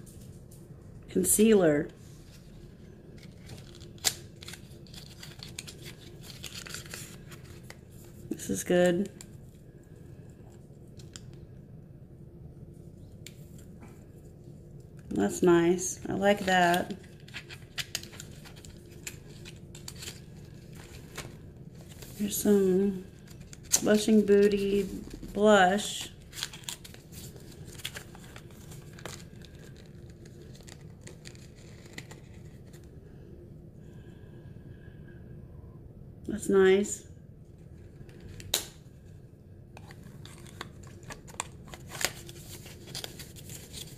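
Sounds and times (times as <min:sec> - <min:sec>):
faint steady hum: 0:00.0 - 0:43.9
packaging crinkling and tearing: 0:03.1 - 0:08.1, 0:16.3 - 0:22.4, 0:23.0 - 0:32.9, 0:39.8 - 0:43.9
handling small plastic tube: 0:39.7 - 0:43.9.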